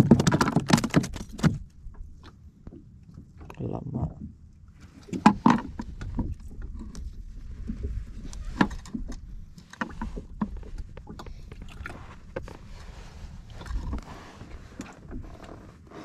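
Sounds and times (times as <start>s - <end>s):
wind and water rumble: 0.0s - 16.0s.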